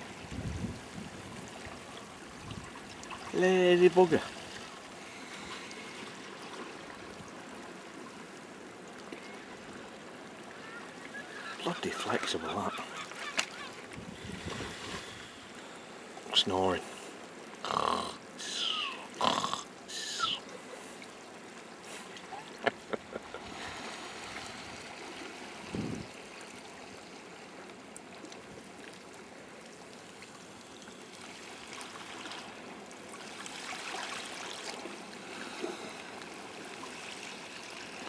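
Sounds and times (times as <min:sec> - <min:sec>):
seal snoring: 0:17.6 - 0:20.4.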